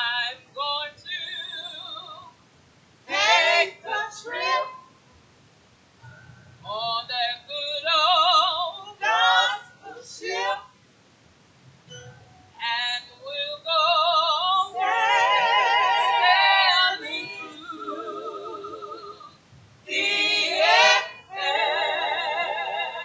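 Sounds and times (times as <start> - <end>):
women singing a church song: 0.0 - 2.4, 3.1 - 4.9, 6.6 - 10.7, 12.6 - 23.0.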